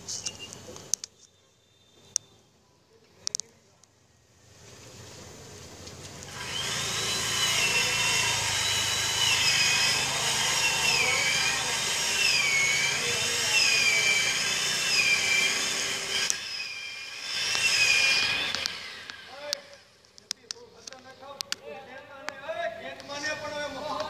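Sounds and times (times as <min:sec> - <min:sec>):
chainsaw cutting wood: 0:06.2 - 0:20.0.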